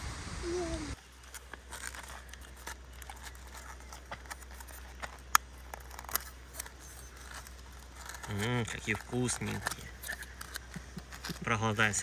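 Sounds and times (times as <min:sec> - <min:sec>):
wind noise: 0:00.0 - 0:01.0
crinkling and rustling: 0:00.9 - 0:12.0.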